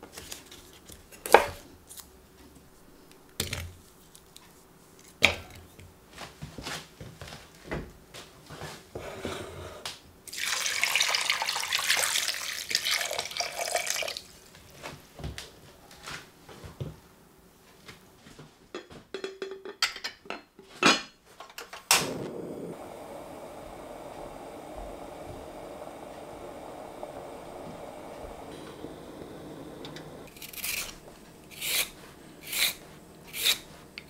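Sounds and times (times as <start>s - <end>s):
water pouring into pot: 10.3s - 14.3s
pot clinking and knocking: 18.8s - 21.1s
gas burner hissing: 21.8s - 34.0s
gas igniter click: 21.9s - 22.7s.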